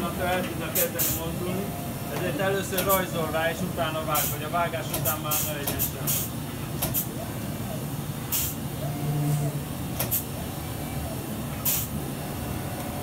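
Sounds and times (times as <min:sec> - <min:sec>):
steady low hum: 0:00.0 - 0:13.0
short hisses: 0:05.3 - 0:06.3, 0:08.3 - 0:08.6
plotter motor whine: 0:08.8 - 0:09.7.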